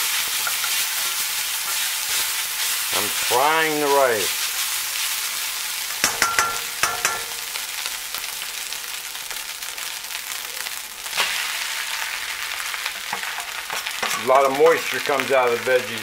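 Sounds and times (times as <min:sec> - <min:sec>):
rice sizzling in a wok: 0:00.0 - 0:16.0
spatula scraping and tapping pan: 0:00.3 - 0:02.4, 0:06.0 - 0:07.4.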